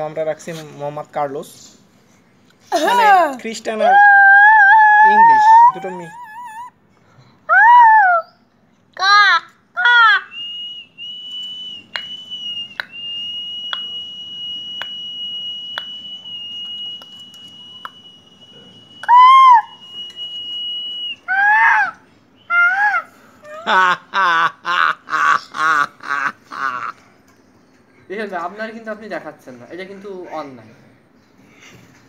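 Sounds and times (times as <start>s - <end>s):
laughter: 23.5s - 27.0s.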